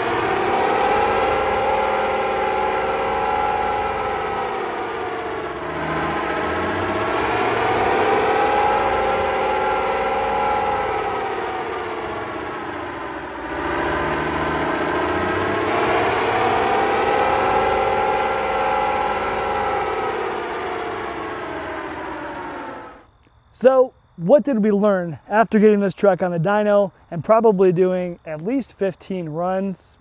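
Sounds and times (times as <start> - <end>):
truck engine and exhaust running: 0.0 - 23.1.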